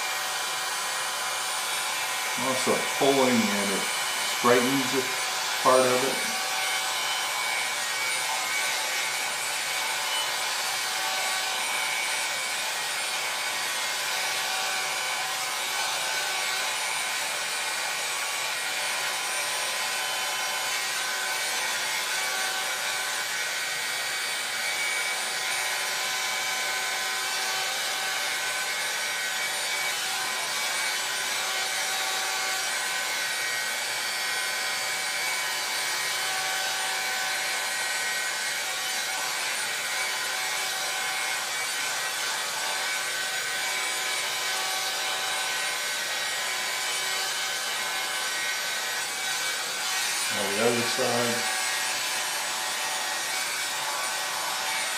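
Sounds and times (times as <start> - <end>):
hot-air brush blowing: 0.0 - 54.9.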